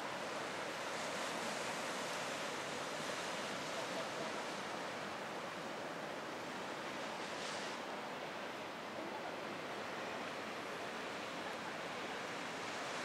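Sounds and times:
sea surf washing on shore: 0.0s - 13.0s.

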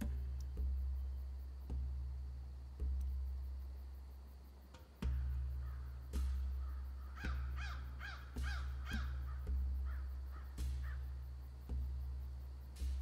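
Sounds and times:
crow cawing: 5.6s - 6.0s, 6.6s - 11.1s.

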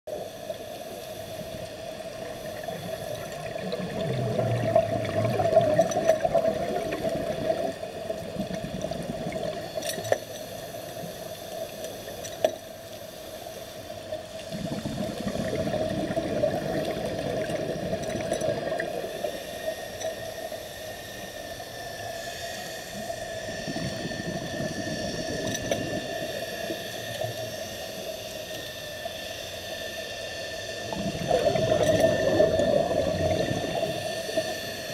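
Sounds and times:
steady underwater hum: 0.1s - 34.9s
bubbling and gurgling: 1.9s - 10.2s, 14.4s - 19.2s, 23.3s - 27.6s, 30.8s - 34.9s.

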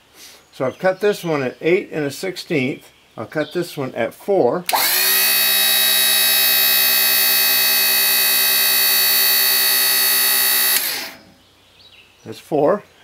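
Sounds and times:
hydraulic lift buzzing whine: 4.7s - 11.4s.

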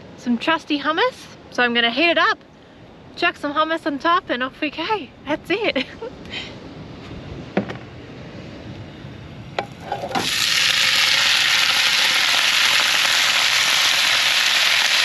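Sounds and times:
light knocks: 7.6s - 7.9s
food sizzling in a hot pan: 9.9s - 15.0s.

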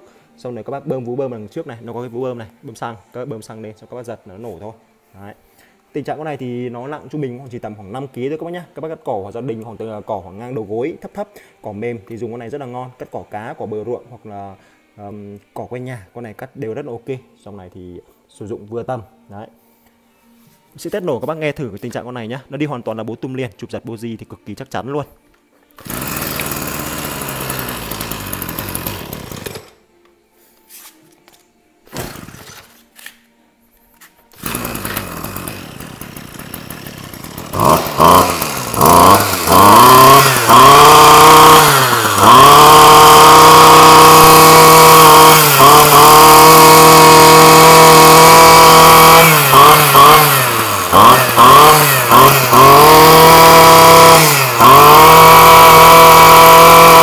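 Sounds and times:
brush cutter engine revving: 25.8s - 29.8s, 31.9s - 32.7s, 34.3s - 57.0s.

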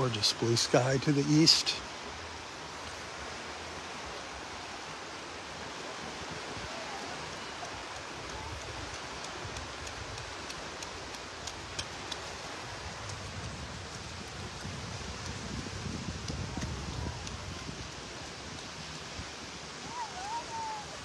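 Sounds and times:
gentle surf: 0.0s - 21.0s
faint ticks: 7.2s - 15.4s.

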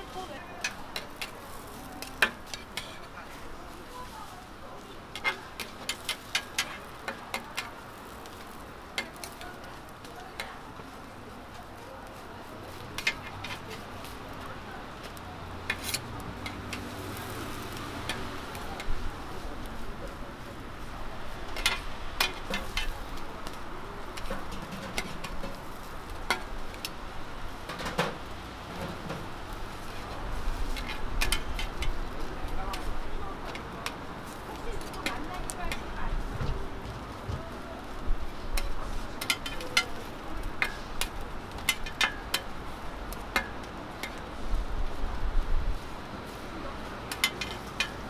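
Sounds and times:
metal spatulas scraping griddle: 0.1s - 4.0s, 5.0s - 7.7s, 12.8s - 14.0s, 15.6s - 19.1s, 21.5s - 26.8s, 27.7s - 33.6s, 38.5s - 42.6s, 47.1s - 48.0s
metal spatulas clinking: 39.2s - 40.0s, 47.1s - 48.0s.

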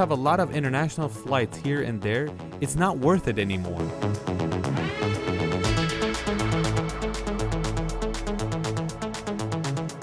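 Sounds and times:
electronic music with fast beat: 3.8s - 10.0s.

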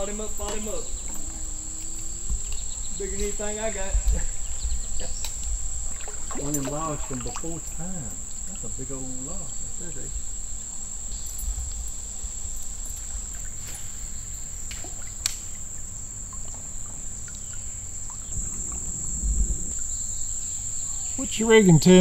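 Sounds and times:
low rumble: 0.0s - 13.3s, 18.3s - 21.2s
insects droning: 0.0s - 22.0s.

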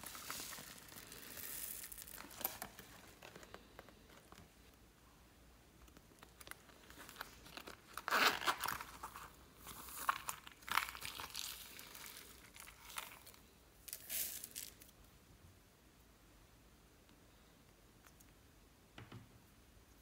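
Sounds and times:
coin purse rustling and unzipping: 0.0s - 4.4s, 6.5s - 14.9s.

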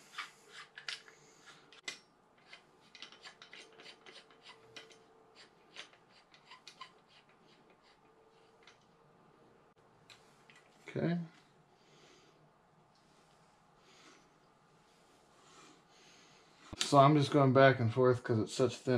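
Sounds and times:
tubing cutter clicking and scraping: 0.1s - 8.8s.

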